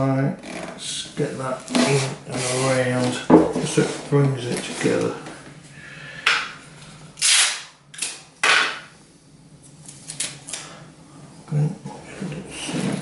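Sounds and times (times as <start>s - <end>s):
sticky tape ripping: 7.2s - 8.6s.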